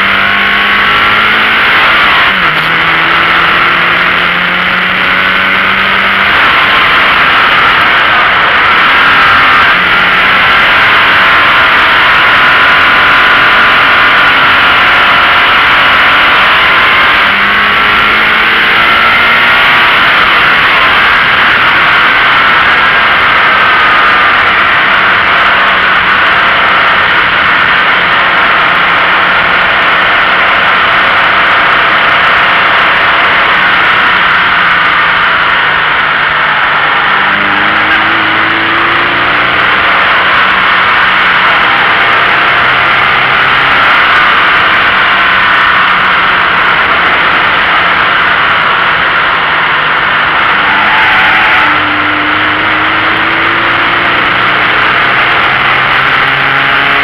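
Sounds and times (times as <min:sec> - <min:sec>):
car engine: 0:00.0 - 0:57.0
wind and road noise: 0:00.0 - 0:57.0.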